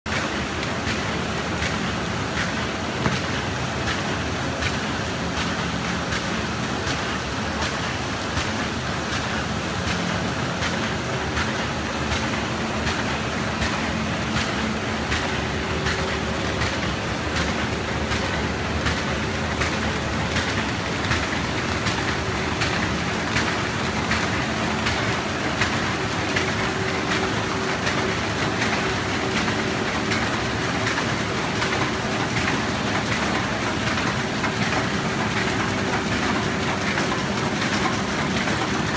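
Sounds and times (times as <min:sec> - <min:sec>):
paper bag machine clattering: 0:12.2 - 0:38.9.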